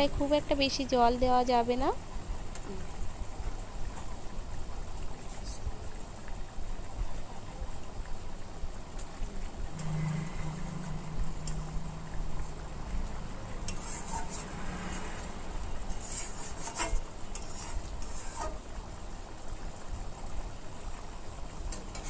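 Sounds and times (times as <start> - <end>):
gravy bubbling: 0.7 - 22.0
low hum: 9.2 - 17.4
metal spatula scraping a wok: 13.6 - 18.7, 21.7 - 22.0.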